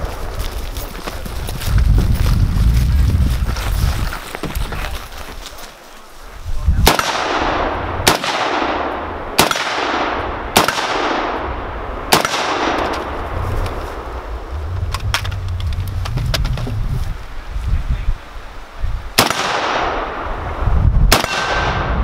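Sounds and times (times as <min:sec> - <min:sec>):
rifle shots with echo: 0:06.8 - 0:13.3, 0:19.2 - 0:20.4, 0:21.1 - 0:22.0.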